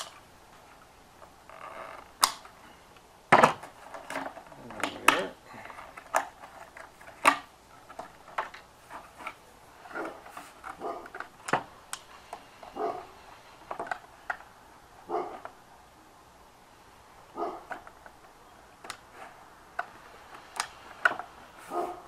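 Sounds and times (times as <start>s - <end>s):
dog barking: 10.8s - 11.1s, 12.8s - 13.1s, 15.1s - 15.4s, 17.3s - 17.7s, 21.7s - 22.0s
tin snips cutting siding: 18.8s - 21.5s.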